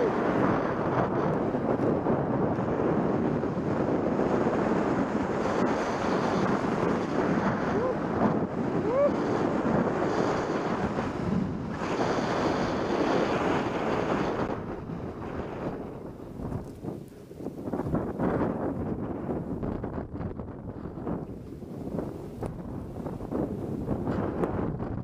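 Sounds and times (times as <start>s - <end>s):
wind rushing over microphone: 0.0s - 25.0s
snowboard hissing through snow: 8.2s - 14.6s.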